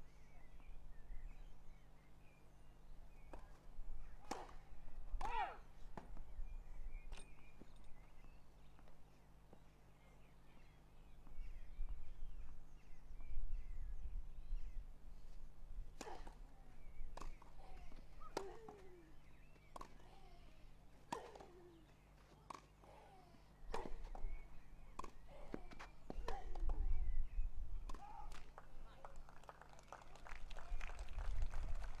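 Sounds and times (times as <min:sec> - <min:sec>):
racket hitting tennis ball: 0:17.2 - 0:19.0, 0:21.0 - 0:21.8, 0:23.7 - 0:24.2.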